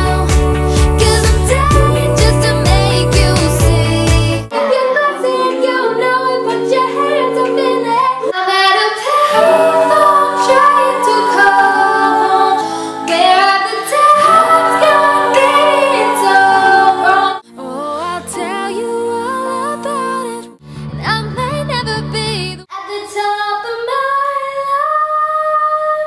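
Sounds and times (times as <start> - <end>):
girls singing in harmony: 1.0 - 20.4
acoustic guitar strumming: 9.3 - 17.3.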